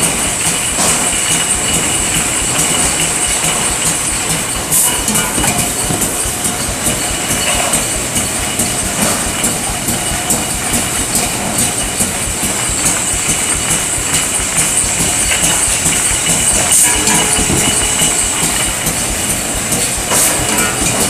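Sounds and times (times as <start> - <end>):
clatter of metal cans and machinery: 0.0 - 21.0.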